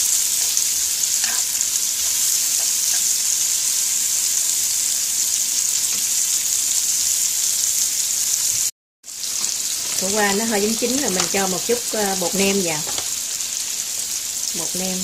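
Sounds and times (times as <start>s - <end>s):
food sizzling in a hot pan: 0.0s - 15.0s
chopsticks stirring food: 1.1s - 3.3s.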